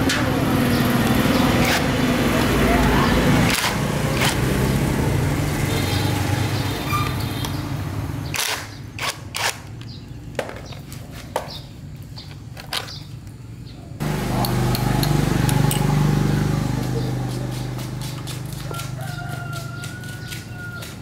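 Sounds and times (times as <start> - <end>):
engine running: 0.0 - 8.5, 14.0 - 20.4.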